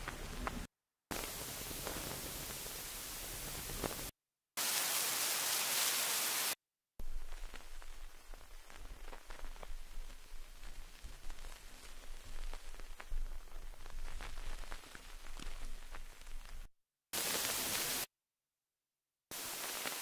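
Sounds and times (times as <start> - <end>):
grainy noise with low rumble: 0.0 - 4.1, 7.0 - 18.0, 19.3 - 20.0
full hiss: 0.0 - 13.6, 17.2 - 18.1, 19.3 - 20.0
bright white noise hiss: 0.0 - 18.1, 19.3 - 20.0.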